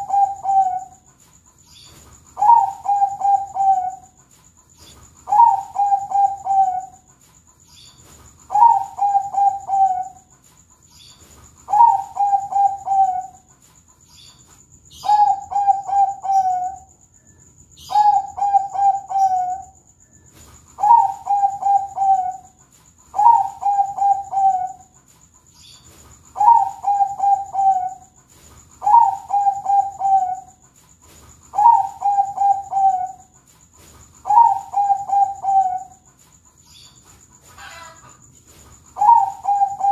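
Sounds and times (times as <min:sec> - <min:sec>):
dove cooing: 0:00.0 - 0:01.1, 0:02.3 - 0:04.2, 0:04.9 - 0:07.1, 0:08.5 - 0:10.3, 0:11.6 - 0:13.5, 0:14.9 - 0:16.9, 0:17.8 - 0:19.8, 0:20.7 - 0:25.0, 0:26.3 - 0:28.2, 0:28.8 - 0:30.7, 0:31.5 - 0:33.4, 0:34.2 - 0:36.1, 0:37.6 - 0:38.2, 0:38.9 - 0:39.9.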